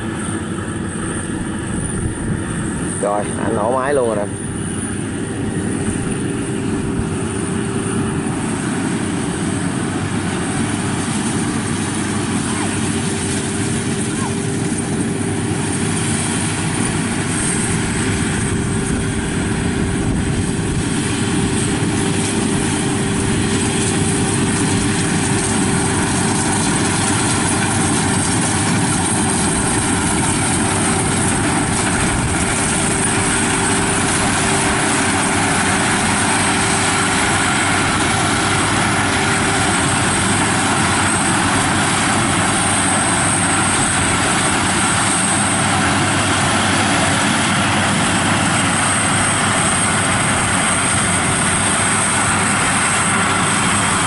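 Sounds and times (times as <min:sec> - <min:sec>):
combine harvester running: 0:00.0 - 0:54.0.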